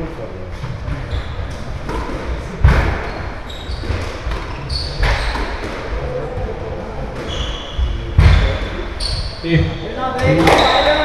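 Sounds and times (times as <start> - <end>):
squash ball smacking court: 1.5 - 3.1, 3.8 - 6.2, 7.1 - 8.7, 10.2 - 11.0
short high squeaks: 3.0 - 5.6, 9.0 - 9.5.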